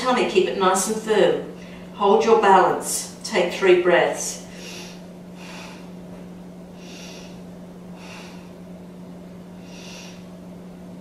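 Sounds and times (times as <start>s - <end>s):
steady low hum: 0.0s - 11.0s
woman breathing: 1.6s - 2.0s, 4.4s - 6.0s, 6.7s - 8.7s, 9.5s - 10.4s.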